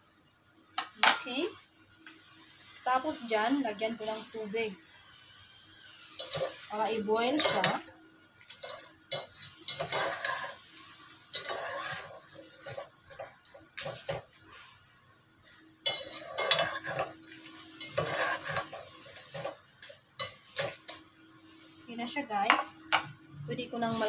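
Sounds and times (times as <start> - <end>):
spatula scraping a pot: 6.1 - 7.8, 8.5 - 14.8, 15.8 - 21.0.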